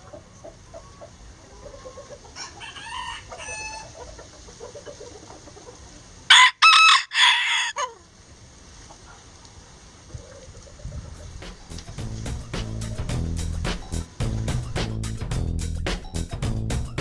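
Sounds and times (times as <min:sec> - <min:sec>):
soft clucking: 0:00.0 - 0:06.2, 0:08.8 - 0:11.9
faint rooster crow: 0:00.6 - 0:04.0, 0:06.3 - 0:08.0
rooster crowing: 0:01.7 - 0:04.0, 0:06.3 - 0:08.0.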